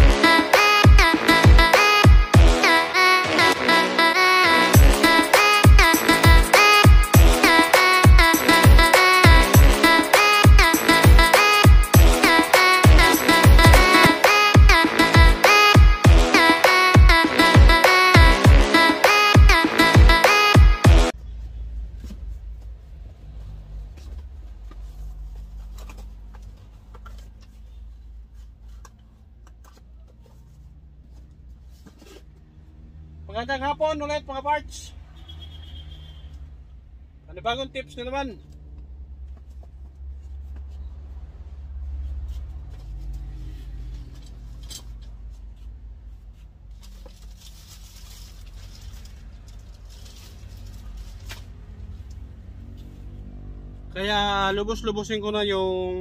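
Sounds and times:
electronic music: 0.0s - 21.2s
cardboard boxes rustling: 23.8s - 32.4s.

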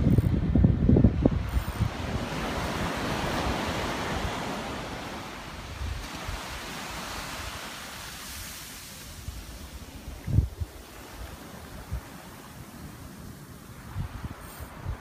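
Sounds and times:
wind rumbling on microphone: 0.0s - 15.0s
surf washing onto sand: 1.1s - 15.0s.

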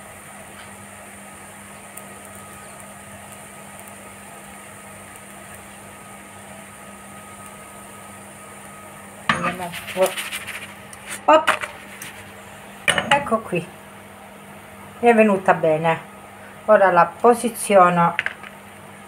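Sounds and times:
food cooking in frying pan: 0.0s - 19.0s
utensil scraping a pan: 9.3s - 12.5s.

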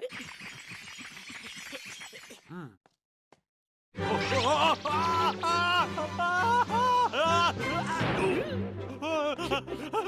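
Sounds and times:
playful background music: 4.0s - 10.0s
cartoon crash sound effect: 7.9s - 8.4s.

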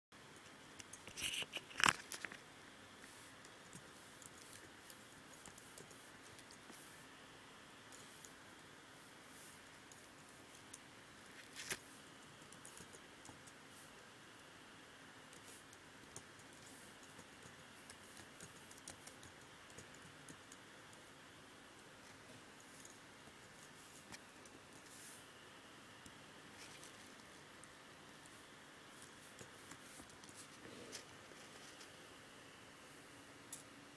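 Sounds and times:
low steady hiss: 0.2s - 33.9s
typing on computer keyboard: 12.2s - 13.6s, 15.3s - 21.2s.

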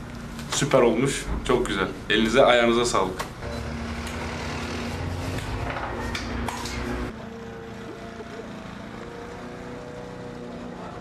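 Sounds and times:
bus passing rumble: 4.9s - 11.0s.

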